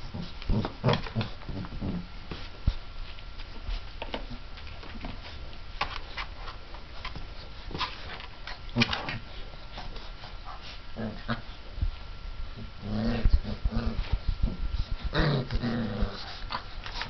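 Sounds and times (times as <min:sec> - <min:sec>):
puppies growling: 0:00.0 - 0:02.1, 0:07.1 - 0:11.8, 0:12.6 - 0:17.0.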